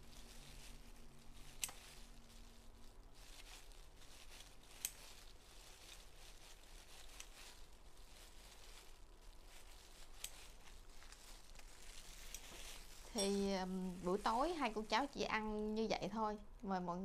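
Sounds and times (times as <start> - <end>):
tearing food: 0.0 - 13.2
plastic gloves rustling: 0.0 - 17.0.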